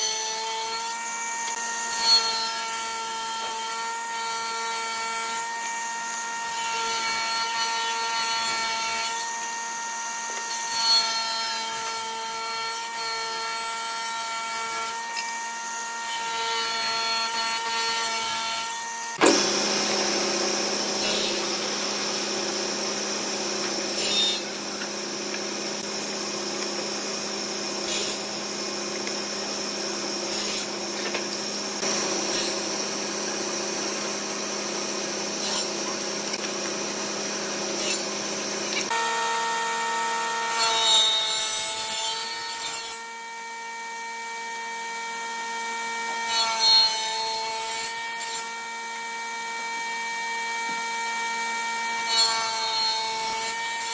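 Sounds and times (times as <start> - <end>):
table saw cutting plywood: 0.0 - 53.9
table saw ripping wood: 10.2 - 44.6, 45.2 - 53.9
sharp knocks: 19.2 - 19.6.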